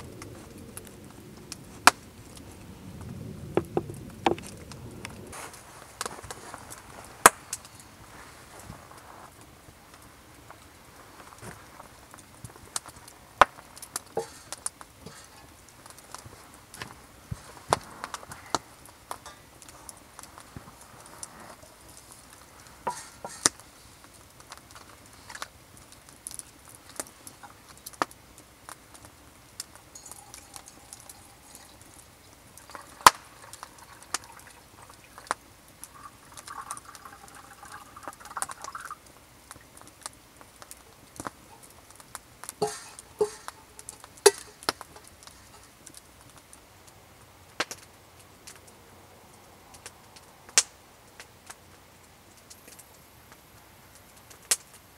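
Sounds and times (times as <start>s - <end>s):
metal cup and kettle clinking: 22.9s - 23.5s, 29.9s - 32.0s, 42.6s - 45.6s
liquid pouring into metal cup: 30.0s - 32.0s, 32.6s - 35.3s, 35.9s - 39.0s, 42.6s - 43.6s.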